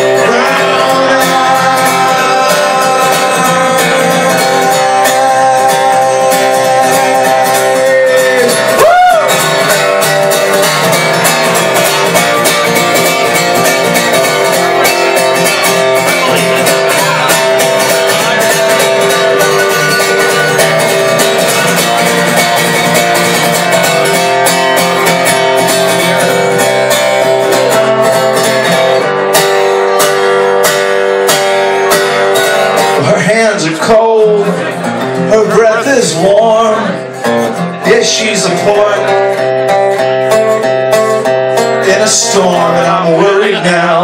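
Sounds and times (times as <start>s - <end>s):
acoustic guitar strumming: 0.0s - 44.0s.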